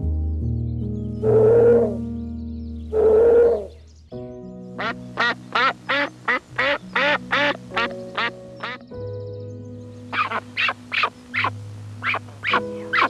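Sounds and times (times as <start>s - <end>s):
background music sustained tones: 0.0s - 13.0s
animal calling rapidly: 3.0s - 3.7s, 10.2s - 13.0s.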